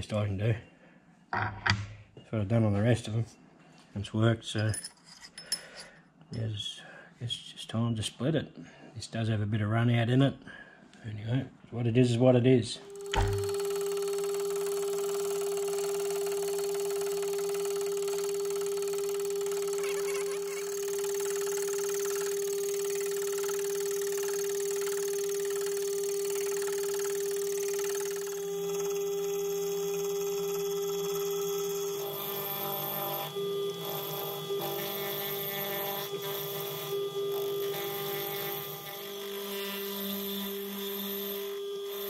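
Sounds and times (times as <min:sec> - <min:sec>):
milling machine motor whine: 0:12.8 - 0:42.0.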